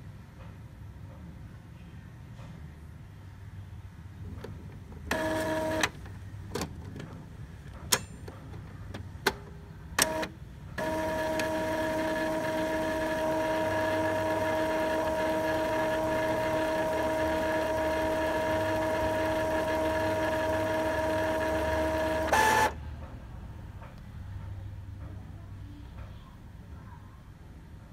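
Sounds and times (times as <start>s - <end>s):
printer motor hum: 5.0s - 6.2s, 10.0s - 22.8s
printer motor whine: 5.1s - 6.0s, 10.0s - 22.8s.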